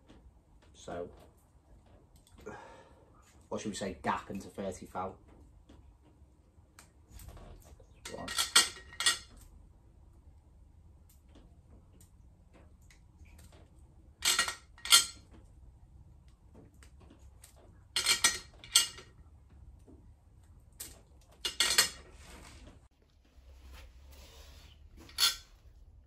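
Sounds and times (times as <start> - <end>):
metal clinking and scraping: 7.2 - 9.5, 14.2 - 15.5, 17.0 - 19.2, 20.9 - 22.8, 25.0 - 25.6.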